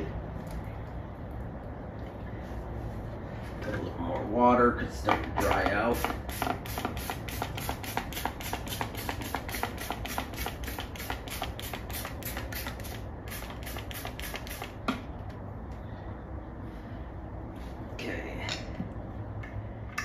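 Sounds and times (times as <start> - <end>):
trigger spray bottle hissing: 5.9 - 14.8.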